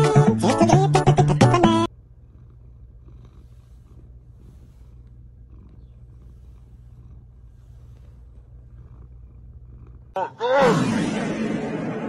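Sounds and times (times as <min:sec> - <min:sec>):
cat purring: 0:00.0 - 0:10.2.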